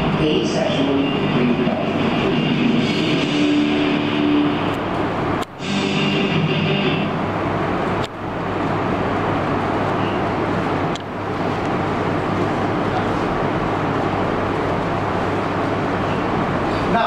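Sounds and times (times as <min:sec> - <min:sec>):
low hum: 0:00.0 - 0:16.8
steady rushing noise: 0:00.0 - 0:17.0
music: 0:02.3 - 0:04.8, 0:05.6 - 0:07.2.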